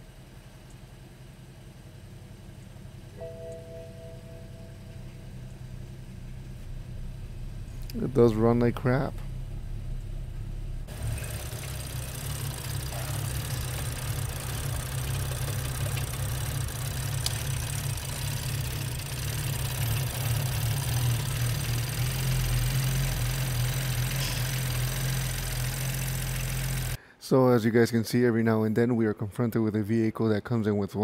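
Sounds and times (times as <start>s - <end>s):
car engine idling roughly: 5.7s - 27.0s.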